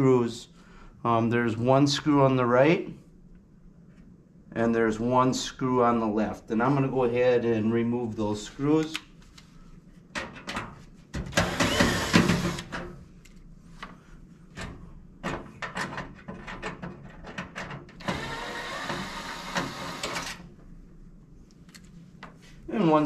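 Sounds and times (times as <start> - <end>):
drill-driver running: 11.3 - 12.7, 18.0 - 20.4.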